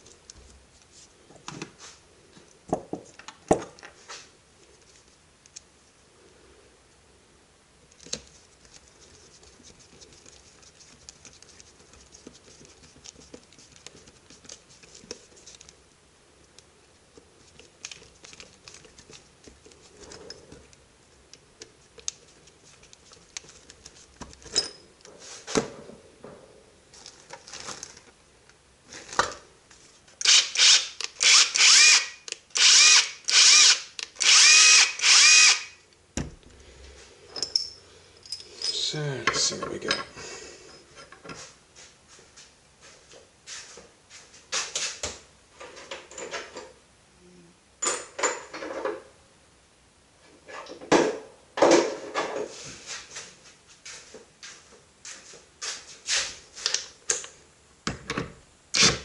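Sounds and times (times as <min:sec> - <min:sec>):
impact driver motor whirring: 0:30.2 - 0:35.7.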